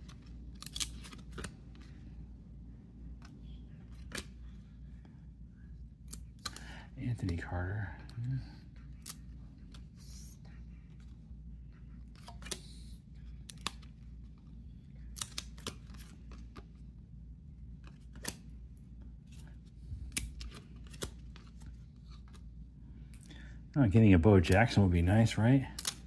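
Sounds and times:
trading cards flipped by hand: 0:00.0 - 0:02.0, 0:03.1 - 0:04.7, 0:12.0 - 0:16.9, 0:17.8 - 0:22.6.

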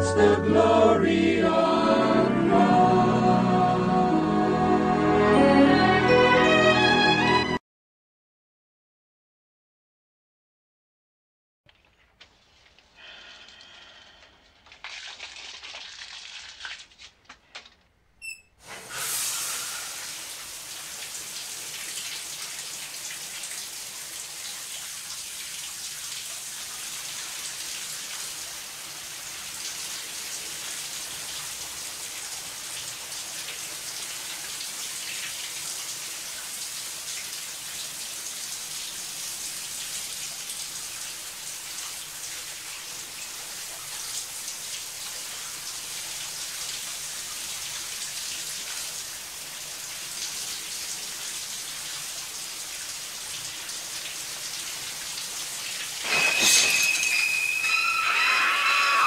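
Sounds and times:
shower spray hissing onto tile: 0:18.6 - 0:59.0
tap squeak: 0:57.2 - 0:59.0.

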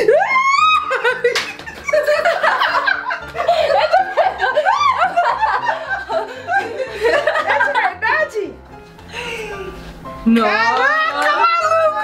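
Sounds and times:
women laughing and squealing: 0:00.0 - 0:08.0.

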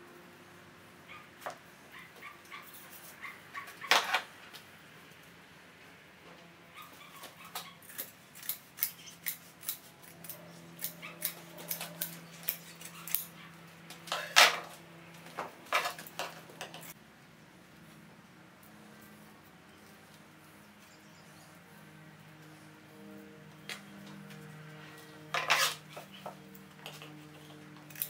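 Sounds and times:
shears snipping fabric: 0:06.8 - 0:17.0, 0:23.6 - 0:28.0.

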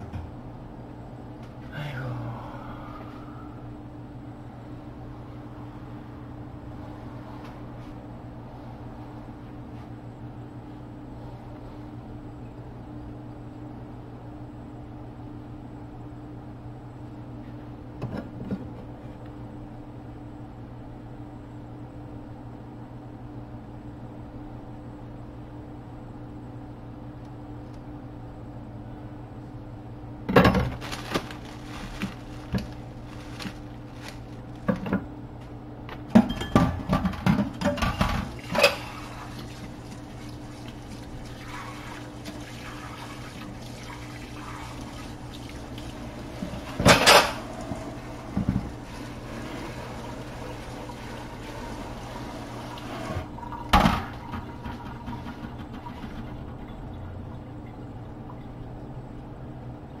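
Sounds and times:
steady low hum: 0:00.0 - 1:00.0
utensils and cookware clinking: 0:46.8 - 0:47.5.

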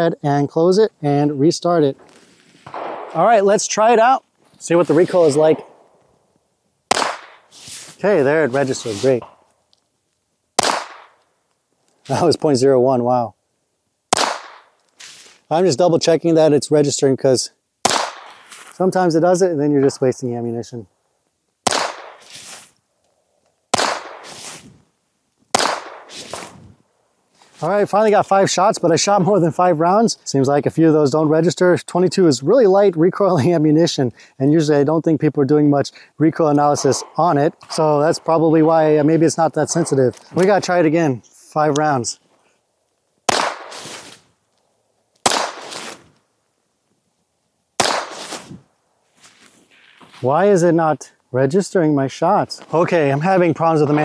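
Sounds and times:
pistol shots: 0:02.6 - 0:03.6, 0:05.4 - 0:06.0, 0:06.9 - 0:07.5, 0:10.6 - 0:11.2, 0:14.1 - 0:14.7, 0:17.8 - 0:18.6, 0:21.6 - 0:22.3, 0:23.7 - 0:24.5, 0:25.5 - 0:26.5, 0:36.7 - 0:37.3, 0:43.3 - 0:44.1, 0:45.2 - 0:46.0, 0:47.8 - 0:48.5.

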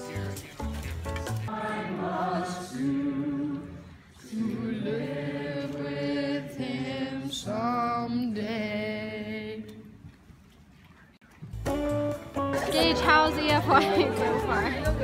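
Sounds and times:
teenagers singing together: 0:01.5 - 0:09.9.

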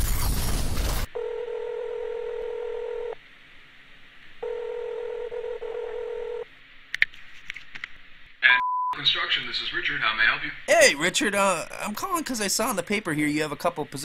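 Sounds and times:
telephone ringback tone: 0:01.2 - 0:03.2, 0:04.4 - 0:06.4.

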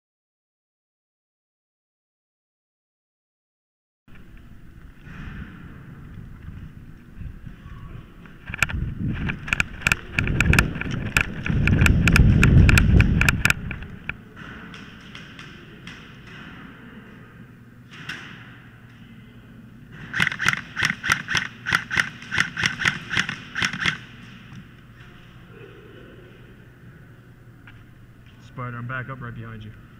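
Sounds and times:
airsoft rifle shots: 0:08.5 - 0:17.0, 0:17.9 - 0:18.7, 0:19.9 - 0:24.5.

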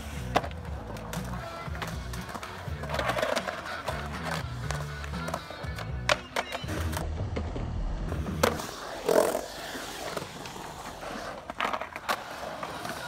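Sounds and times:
skateboard clacking on concrete: 0:00.0 - 0:07.0, 0:11.4 - 0:13.0
skateboard wheels rolling on concrete: 0:00.0 - 0:13.0.

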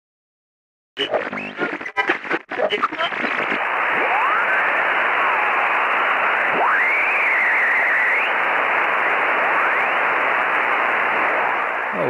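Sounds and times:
shortwave radio static: 0:01.0 - 0:12.0
heterodyne whistle sliding in pitch: 0:06.6 - 0:08.3.

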